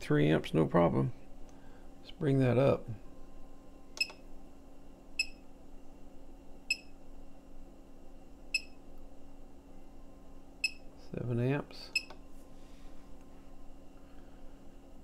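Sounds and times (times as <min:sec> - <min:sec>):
steady low hum: 0:00.0 - 0:15.0
short electronic keypad beeps: 0:06.7 - 0:06.9.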